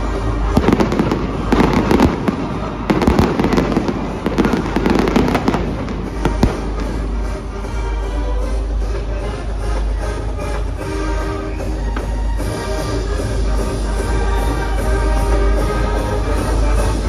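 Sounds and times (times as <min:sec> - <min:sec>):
music playing: 0:00.0 - 0:17.0
fireworks crackling pops: 0:00.4 - 0:07.4.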